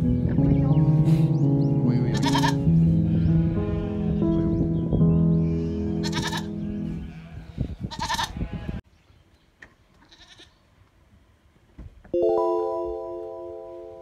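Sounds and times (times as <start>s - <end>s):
background music: 0.0s - 7.0s, 12.2s - 14.0s
goats bleating: 2.1s - 4.5s, 5.4s - 8.8s.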